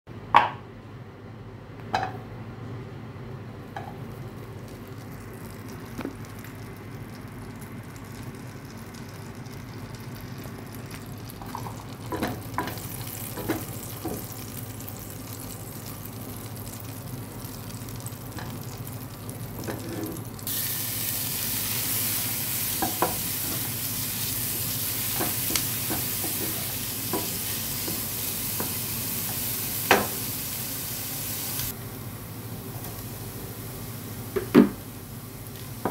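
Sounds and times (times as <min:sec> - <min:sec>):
onions sizzling in hot fat: 0:04.1 - 0:35.9.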